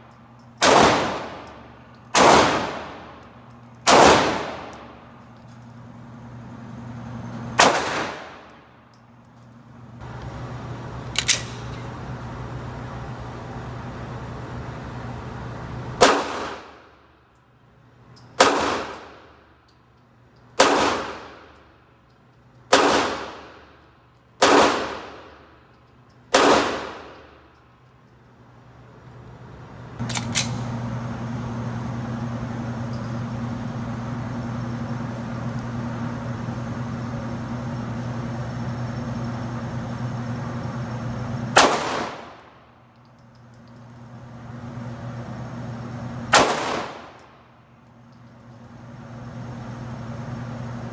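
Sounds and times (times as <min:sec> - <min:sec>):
gunshots echoing indoors: 0:00.6 - 0:05.0, 0:07.6 - 0:08.6, 0:16.0 - 0:16.9, 0:18.4 - 0:19.4, 0:20.6 - 0:21.6, 0:22.7 - 0:23.7, 0:24.4 - 0:25.4, 0:26.3 - 0:27.4, 0:41.5 - 0:42.4, 0:46.3 - 0:47.2.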